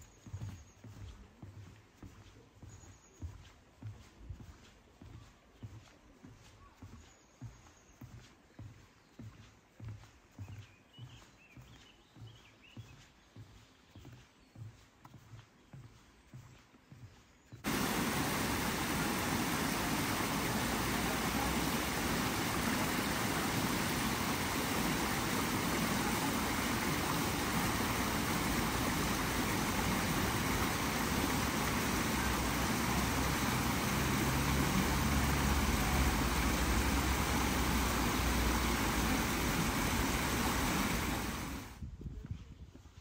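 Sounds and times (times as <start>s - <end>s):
deep water rumble: 17.6s - 41.8s
waterfall rushing over rocks: 17.6s - 41.8s.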